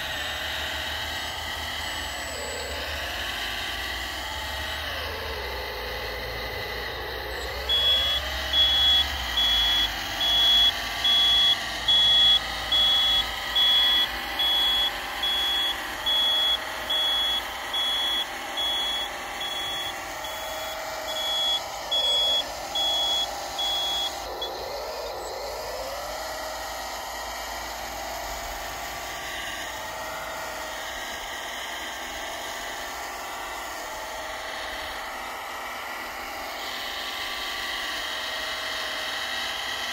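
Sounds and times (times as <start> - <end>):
reversing alarm beeping: 0.0 - 26.8
electric hydraulic pump whining: 0.0 - 39.9.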